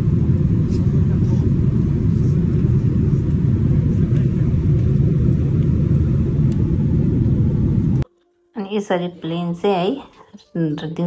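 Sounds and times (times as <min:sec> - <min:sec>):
airliner cabin engine rumble: 0:00.0 - 0:08.0.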